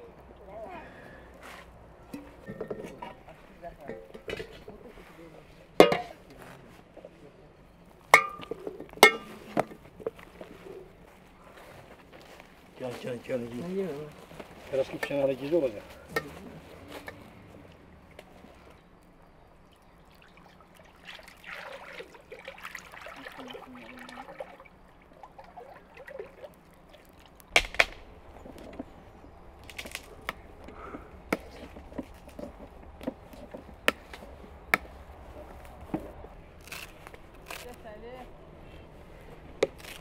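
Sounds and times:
oil pouring into a pot: 19.6s - 27.5s.

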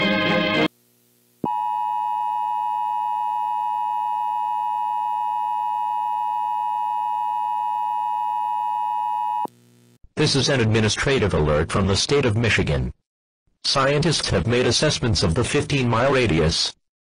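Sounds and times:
two-tone alarm: 1.5s - 9.5s.

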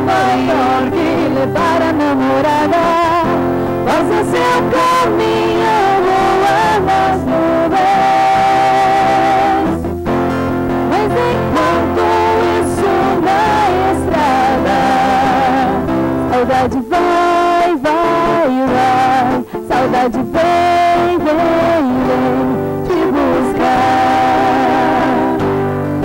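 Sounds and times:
woman singing: 0.0s - 9.9s, 10.7s - 26.0s
acoustic guitar strummed: 0.0s - 26.0s.

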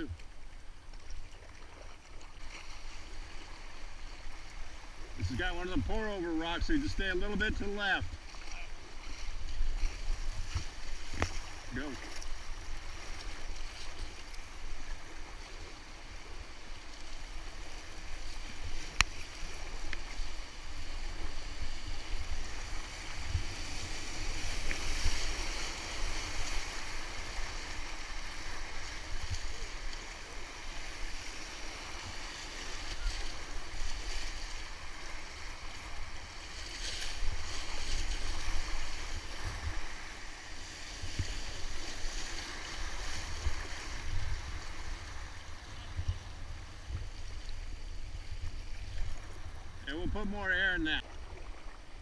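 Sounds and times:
rushing whitewater: 2.9s - 45.5s
wind buffeting microphone: 42.8s - 49.9s.

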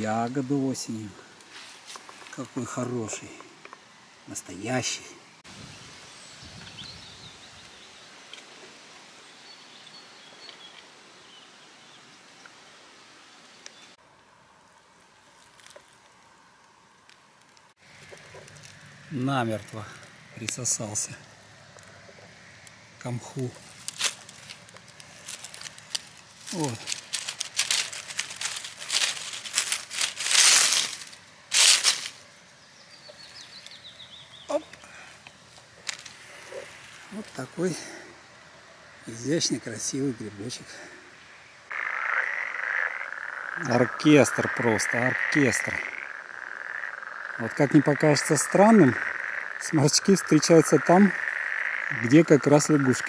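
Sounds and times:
rustling of dry forest litter: 0.0s - 4.8s, 13.6s - 53.0s
steady hiss: 0.0s - 53.0s
loud crunching: 23.0s - 32.2s
light rustling: 23.5s - 32.3s.

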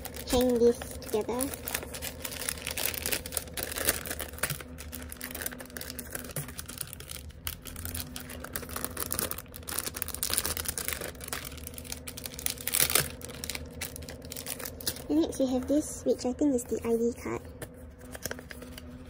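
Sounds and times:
plastic bag crinkling: 0.0s - 15.5s.

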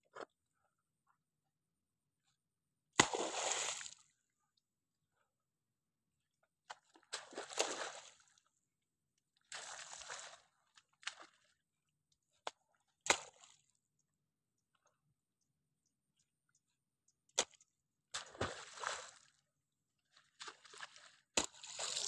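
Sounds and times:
shovel squelching in wet mud: 20.4s - 22.0s.

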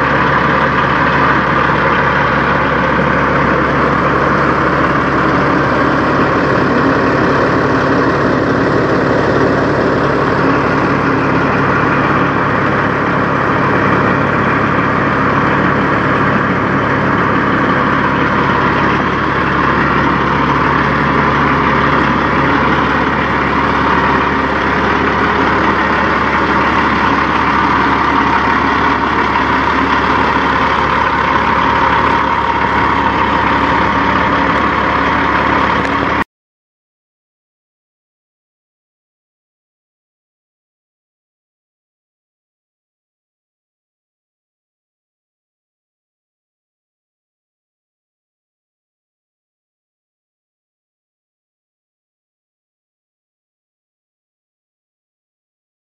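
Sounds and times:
diesel engine idling: 0.0s - 36.2s.

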